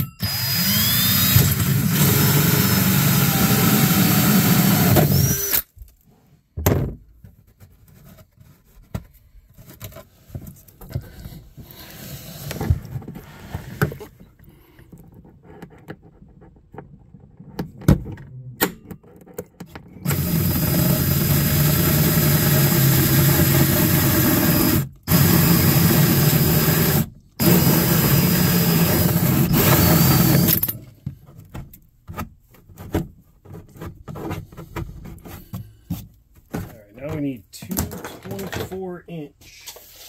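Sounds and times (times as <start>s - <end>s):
cordless drill cutting hole: 0.0s - 5.7s, 20.0s - 30.8s.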